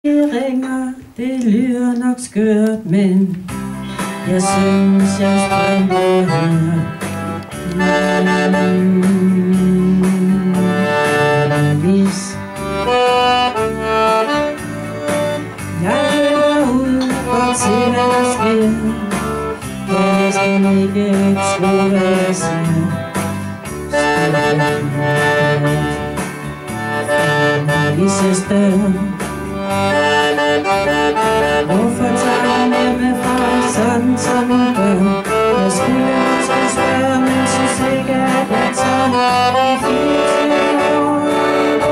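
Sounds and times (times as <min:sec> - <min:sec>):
woman singing through microphone: 0:00.0 - 0:03.5, 0:04.2 - 0:07.0, 0:07.6 - 0:12.5, 0:15.8 - 0:19.2, 0:19.9 - 0:23.1, 0:27.1 - 0:29.2, 0:31.6 - 0:41.9
button accordion playing: 0:03.5 - 0:41.9.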